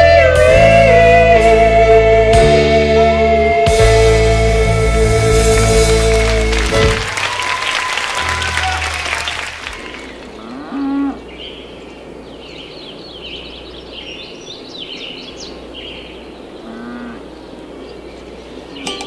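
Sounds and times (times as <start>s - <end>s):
birds chirping: 5.5s - 19.0s
cow mooing: 10.3s - 11.3s, 16.6s - 17.3s.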